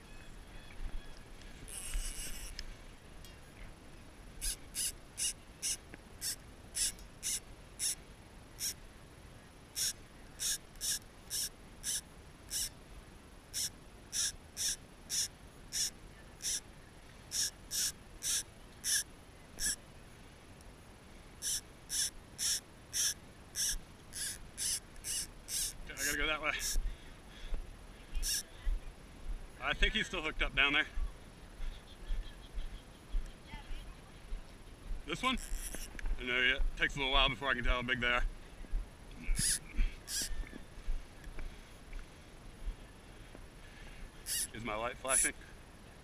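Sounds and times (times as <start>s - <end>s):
fishing reel buzzing: 1.7s - 2.6s, 4.4s - 8.0s, 8.6s - 8.8s, 9.7s - 12.7s, 13.5s - 16.6s, 17.3s - 19.8s, 21.4s - 26.8s, 28.2s - 28.4s, 35.3s - 35.9s, 39.4s - 40.3s, 44.2s - 45.3s.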